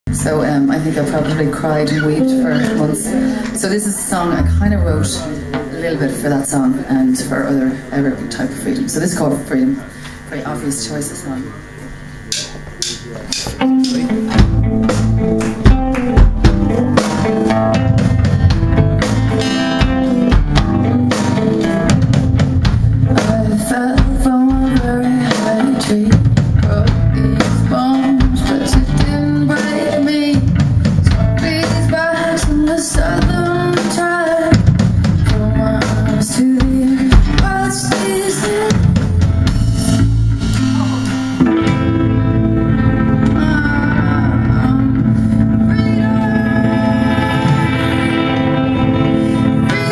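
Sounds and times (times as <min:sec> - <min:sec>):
drum kit beat: 0:04.3 - 0:05.8, 0:12.3 - 0:49.9.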